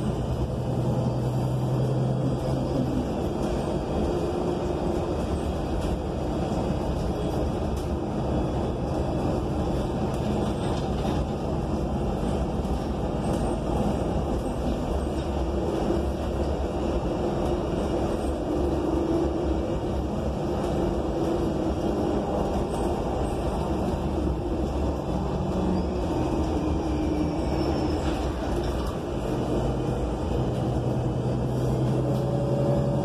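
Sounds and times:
bus engine drone: 0.0s - 33.0s
road noise: 0.0s - 33.0s.

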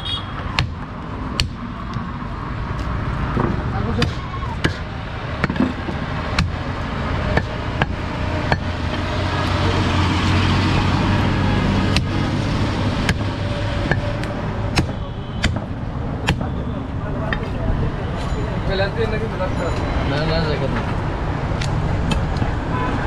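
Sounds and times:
traffic rumble: 0.0s - 23.0s
cleaver chopping meat and bone: 0.5s - 2.0s, 3.9s - 9.1s, 11.8s - 12.2s, 13.0s - 16.6s.

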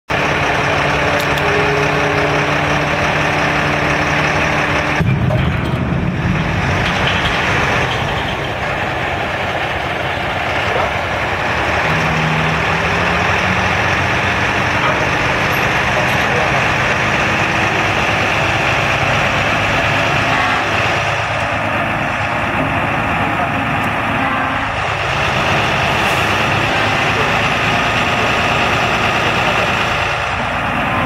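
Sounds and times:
low hum: 0.1s - 24.9s
diesel engine running: 0.1s - 31.0s.

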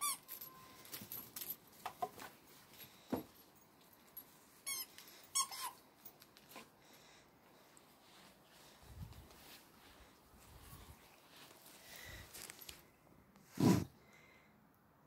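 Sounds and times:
rubber toy squeaking: 0.0s - 0.3s, 4.6s - 5.8s.

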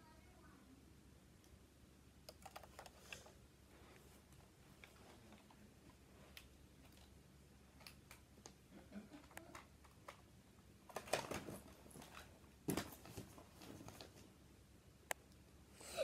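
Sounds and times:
faint clicks and rustles: 2.2s - 14.4s.

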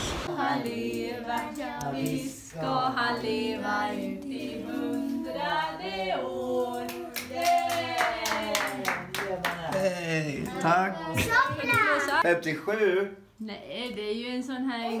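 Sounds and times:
voices singing together: 0.0s - 9.7s
hand claps: 6.9s - 9.9s.

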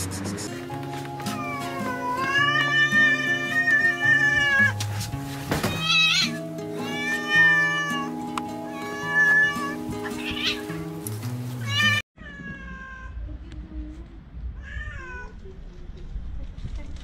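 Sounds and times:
background music: 0.0s - 12.0s
cats meowing: 1.4s - 4.8s, 5.7s - 10.9s, 11.6s - 13.2s.

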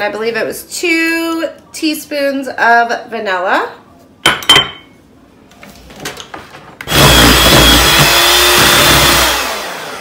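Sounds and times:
electric hand mixer running: 6.9s - 10.0s.

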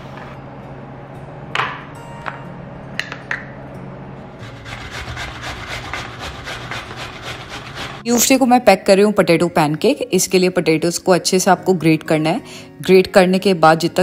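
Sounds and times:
potato grated on metal grater: 4.4s - 8.3s.

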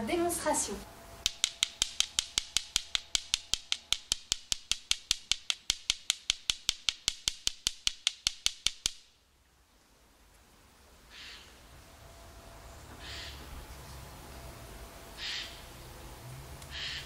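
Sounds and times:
flint striking stone clicks: 1.2s - 9.1s.

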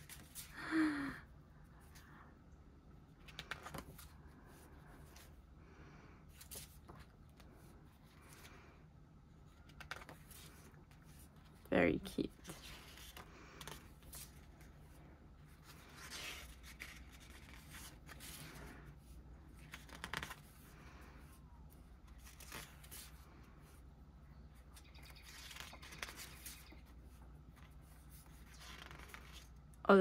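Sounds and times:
book pages rustling: 0.0s - 0.5s, 3.1s - 5.4s, 6.3s - 8.7s, 9.3s - 11.6s, 12.3s - 29.8s
low steady hum: 0.0s - 30.0s.

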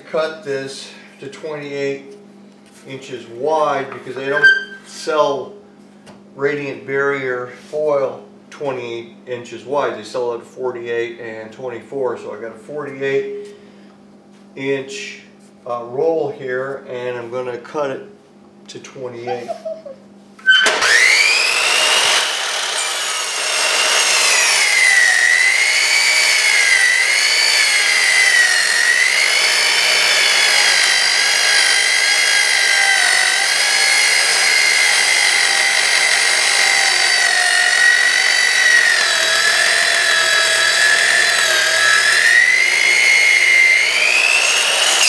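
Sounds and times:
miter saw motor whine: 20.4s - 45.0s.

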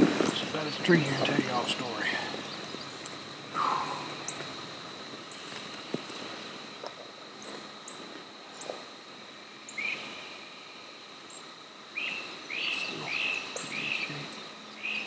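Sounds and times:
high insect drone: 0.0s - 15.0s
bird giving loud short calls: 3.6s - 4.4s.

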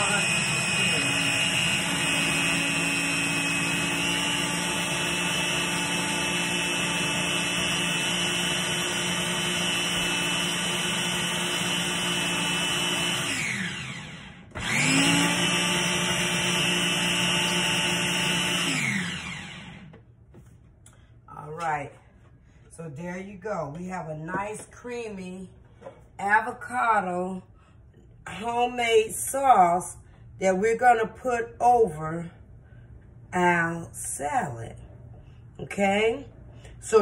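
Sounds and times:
blender motor running: 0.0s - 20.0s.

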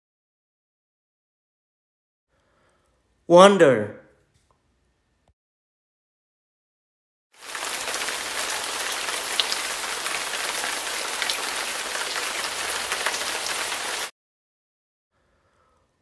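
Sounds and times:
rain pattering: 7.4s - 14.1s.

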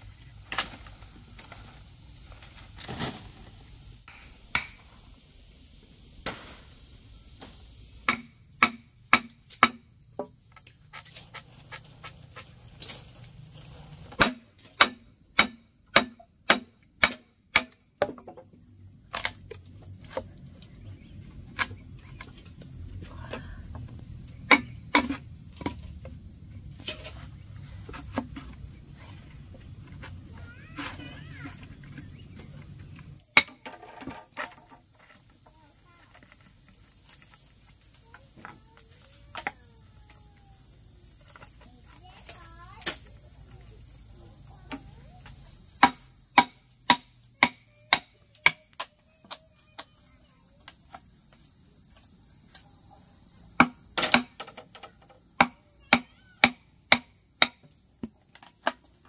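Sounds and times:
high insect drone: 0.0s - 59.0s
sharp knocks: 45.8s - 48.1s.

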